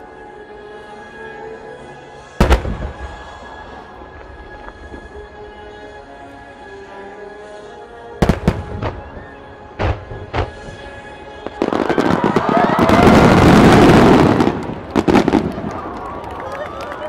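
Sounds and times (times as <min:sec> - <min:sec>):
fireworks bursts and crackling: 0:02.4 - 0:05.9, 0:08.2 - 0:17.0.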